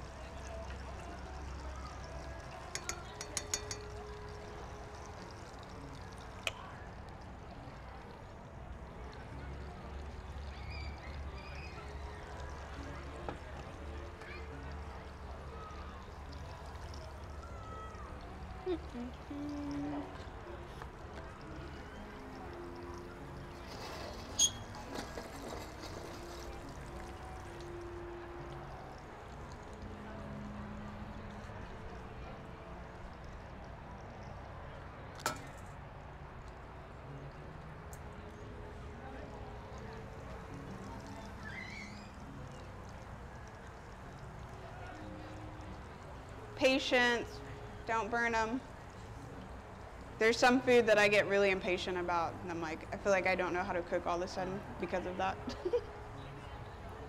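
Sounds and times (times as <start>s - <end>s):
metal spoon clinking on bowl: 2.7s - 4.0s.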